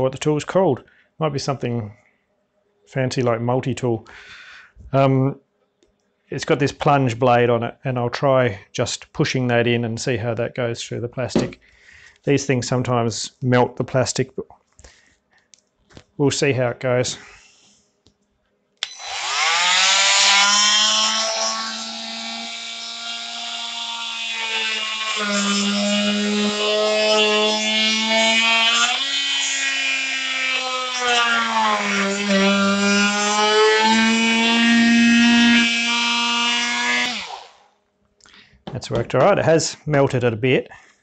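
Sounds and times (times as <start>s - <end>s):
multi-tool buzzing: 18.8s - 37.7s.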